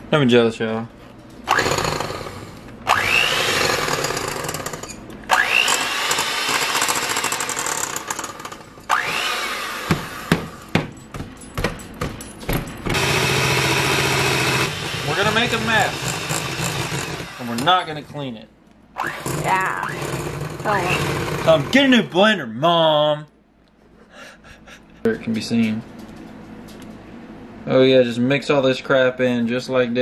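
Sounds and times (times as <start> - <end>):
hand mixer motor whining: 1.5 - 10.6, 12.9 - 17.8, 19.0 - 21.9.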